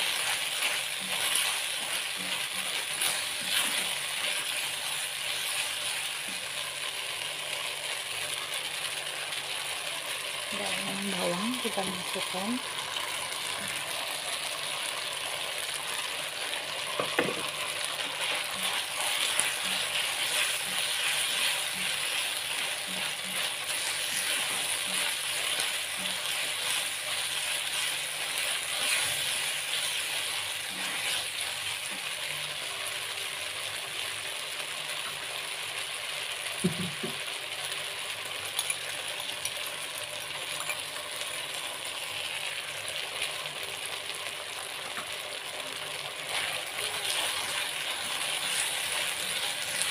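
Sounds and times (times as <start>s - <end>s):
vegetables sizzling in a wok: 0.0s - 49.9s
spatula knocking on a pan: 17.0s - 17.4s.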